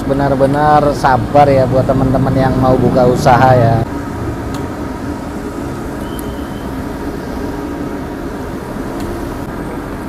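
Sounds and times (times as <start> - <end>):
steady mechanical rumble: 0.0 - 10.0
low hum: 0.9 - 9.8.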